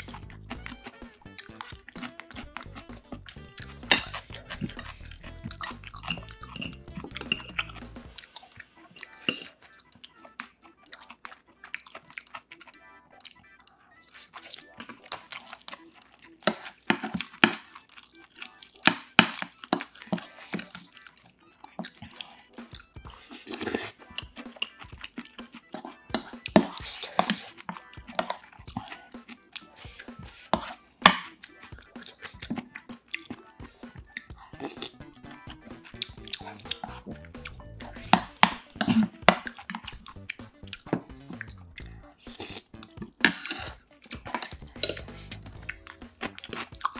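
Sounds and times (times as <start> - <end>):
chewing with wet mouth sounds: 0.0 - 46.9
spoon scraping a bowl: 0.2 - 9.6, 15.1 - 17.7, 19.2 - 20.9, 23.0 - 32.7, 34.0 - 40.0, 42.2 - 46.9
utensils clicking on dishes: 3.6 - 7.8.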